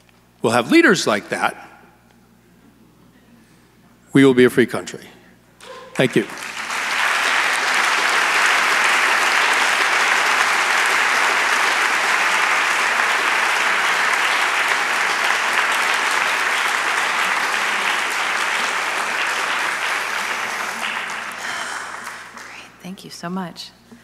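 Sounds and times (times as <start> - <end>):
crowd applauding: 5.6 - 22.7.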